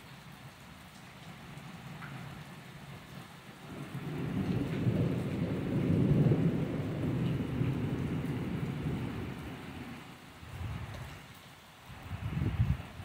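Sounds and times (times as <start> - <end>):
steady rain: 0.0 - 13.0
thunder rumbling: 3.7 - 11.0.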